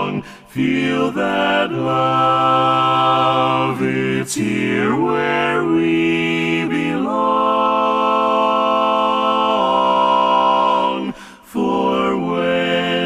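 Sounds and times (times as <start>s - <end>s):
chorus singing in harmony: 0.0s - 13.0s.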